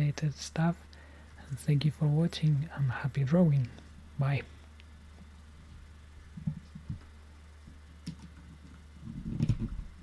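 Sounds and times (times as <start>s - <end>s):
low electrical hum: 0.0s - 10.0s
keyboard and mouse clicks: 8.0s - 9.8s.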